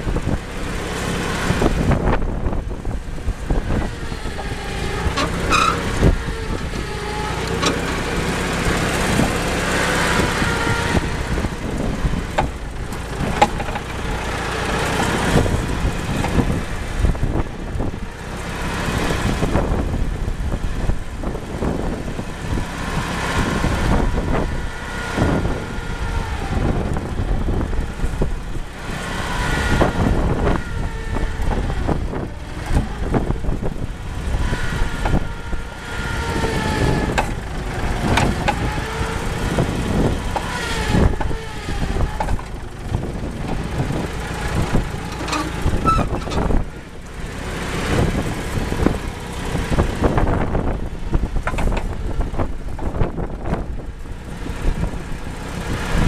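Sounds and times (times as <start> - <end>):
forklift engine revving: 0.0 - 56.0
knocks and clanks: 12.3 - 14.0, 51.4 - 52.0.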